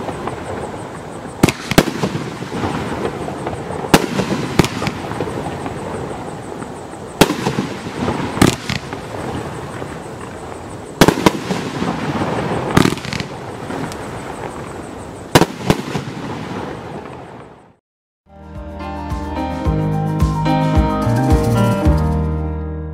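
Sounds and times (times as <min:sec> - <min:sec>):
loud sharp firework bangs: 0:00.0 - 0:17.2
firework crackling: 0:00.0 - 0:17.6
fireworks launching and bursting: 0:00.0 - 0:17.8.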